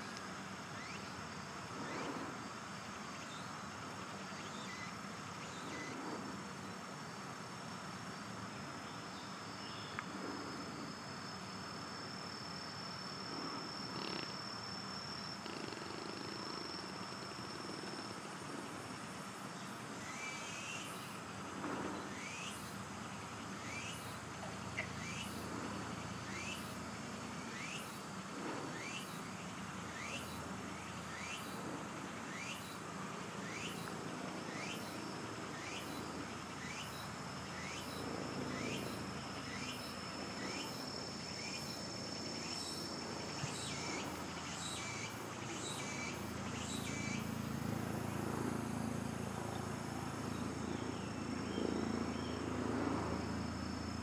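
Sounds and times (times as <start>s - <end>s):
insect high-pitched trill: 0.8s - 6.0s, 9.1s - 21.3s, 22.0s - 54.0s.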